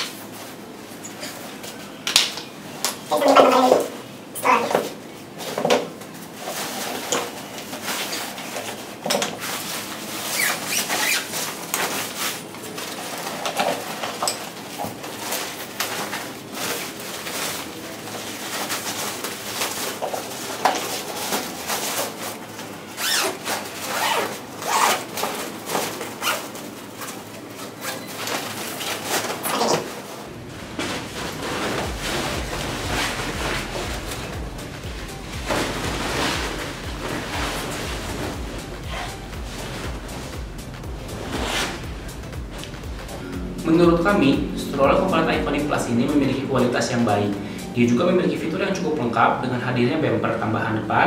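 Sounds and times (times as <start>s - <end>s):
fabric rustling and scraping: 5.3s - 47.4s
zipper being pulled closed: 23.0s - 25.2s.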